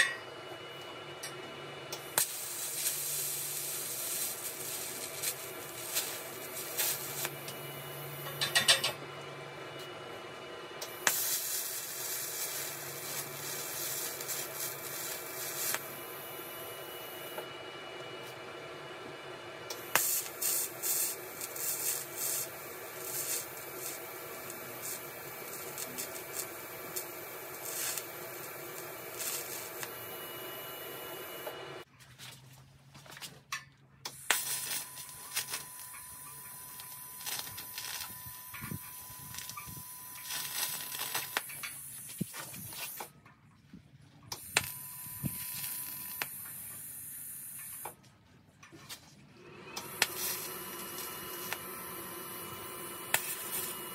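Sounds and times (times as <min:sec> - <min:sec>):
welding arc hissing and crackling: 0:01.9 - 0:08.8, 0:10.8 - 0:17.4, 0:19.7 - 0:31.6, 0:34.2 - 0:43.1, 0:44.4 - 0:48.0, 0:49.8 - 0:53.9
faint hum: 0:34.4 - 0:47.6.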